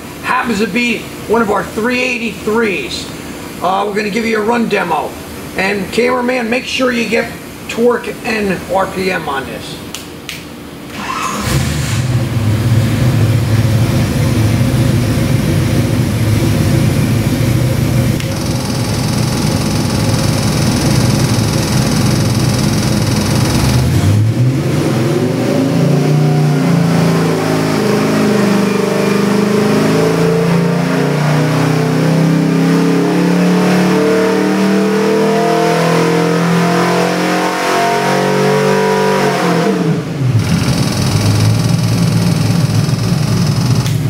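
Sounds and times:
engine revving under load: 10.9s - 44.0s.

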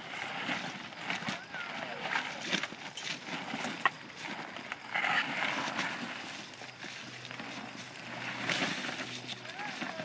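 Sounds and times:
footsteps on gravel: 0.0s - 10.0s
handcart wheels on gravel: 0.0s - 10.0s.

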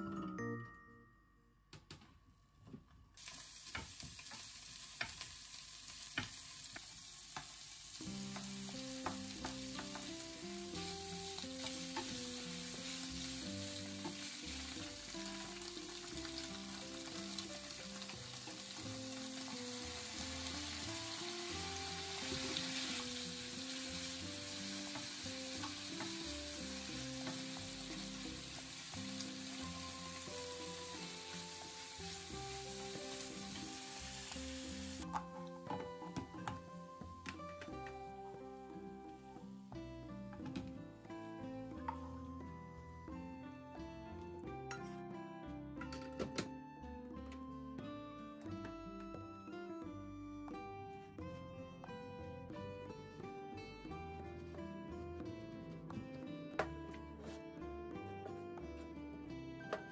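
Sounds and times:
soft background music: 0.0s - 2.6s, 7.4s - 59.9s
vegetables sizzling in oil: 3.2s - 35.2s
wooden spoon knocking on pan: 3.7s - 5.3s, 6.1s - 7.6s, 8.3s - 10.2s, 24.8s - 26.3s.

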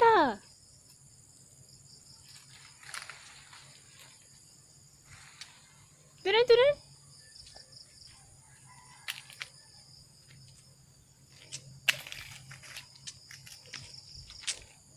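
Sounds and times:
insects buzzing: 0.0s - 14.9s
rustles and scuffs: 2.2s - 6.0s, 10.2s - 14.9s.

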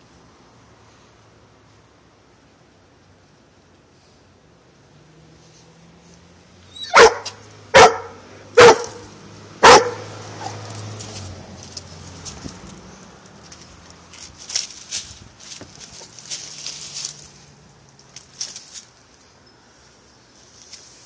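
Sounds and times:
dog barking: 6.8s - 10.6s.

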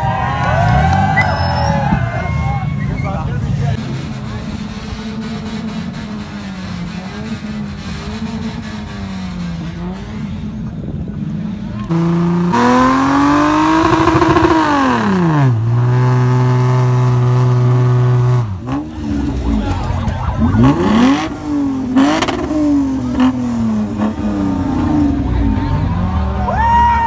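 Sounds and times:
car engine revving: 3.1s - 26.5s.

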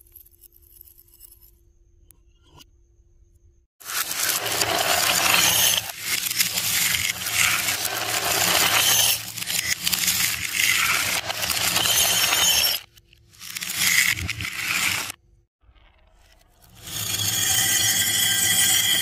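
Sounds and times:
marbles crashing into glass dish: 3.9s - 12.8s
marbles clattering down wooden slope: 3.9s - 15.1s.

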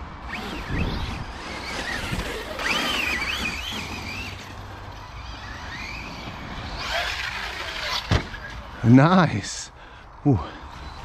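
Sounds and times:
rc car motors whining: 0.1s - 8.9s, 10.4s - 11.0s.

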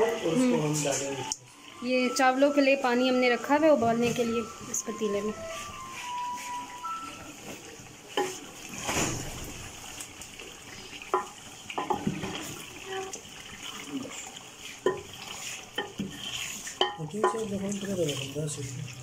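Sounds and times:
chicken sizzling in oil: 0.0s - 19.0s
wooden spoon knocking on pot: 11.1s - 12.5s, 14.8s - 15.1s, 16.8s - 17.5s
spoon scraping through meat: 14.6s - 17.4s.

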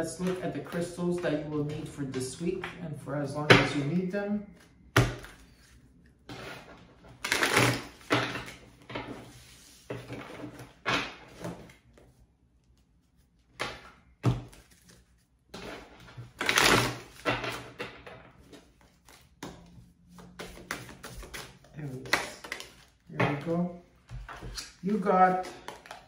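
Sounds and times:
cards being shuffled: 11.3s - 17.6s, 18.4s - 23.5s, 24.2s - 26.0s.

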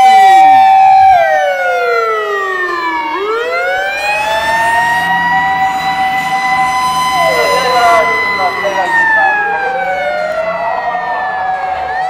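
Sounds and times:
fire engine siren wailing: 0.0s - 12.0s
truck engine humming: 3.0s - 12.0s.

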